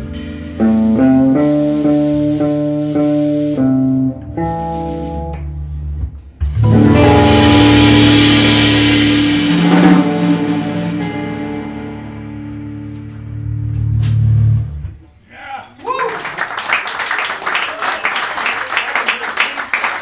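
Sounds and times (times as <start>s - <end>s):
jazz trio playing: 0.0s - 15.0s
cymbal wash: 6.7s - 13.2s.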